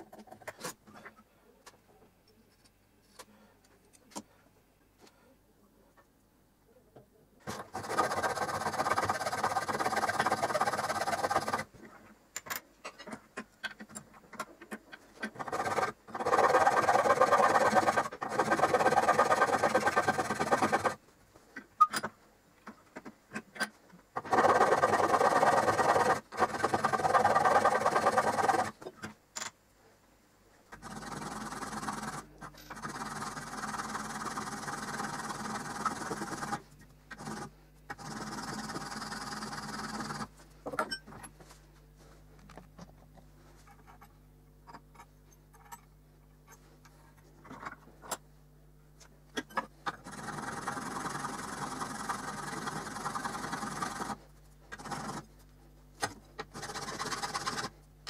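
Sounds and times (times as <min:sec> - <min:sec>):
flat file on metal: 0:07.6 - 0:11.6, 0:15.4 - 0:21.0.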